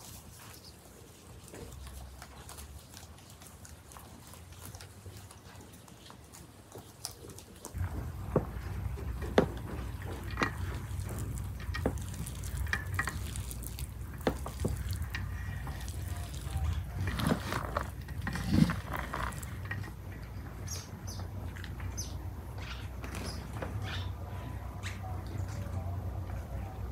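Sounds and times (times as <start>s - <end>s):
hands mixing rice squishing: 0.0s - 26.9s
steady low rumble: 7.8s - 22.9s.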